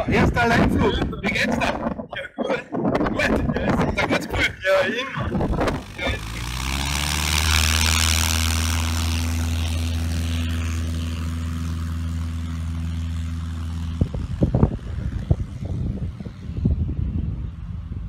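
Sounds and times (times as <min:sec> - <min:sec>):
wind on microphone: 0:00.0 - 0:06.5, 0:13.7 - 0:18.0
propeller plane engine: 0:00.0 - 0:18.0.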